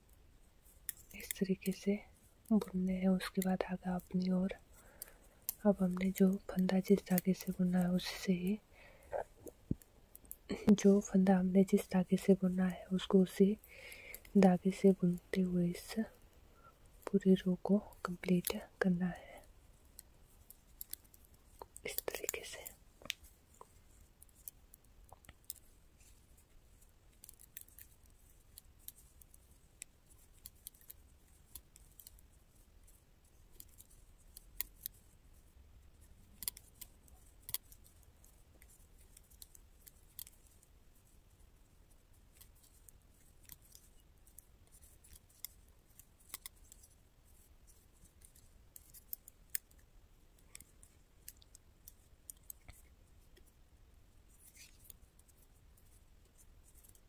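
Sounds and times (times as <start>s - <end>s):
metal knitting needles clicking: 0.8s - 1.8s, 17.9s - 18.6s, 20.0s - 26.5s, 27.1s - 35.1s, 36.2s - 40.7s, 42.3s - 53.5s, 54.4s - 57.0s.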